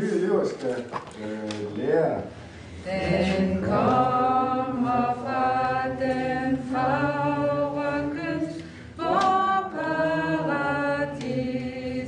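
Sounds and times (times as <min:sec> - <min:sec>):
group of voices singing: 0:02.7 - 0:12.0.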